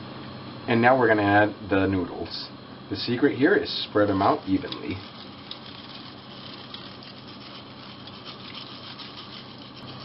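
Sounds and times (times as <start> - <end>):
broth bubbling: 4.4 - 10.0.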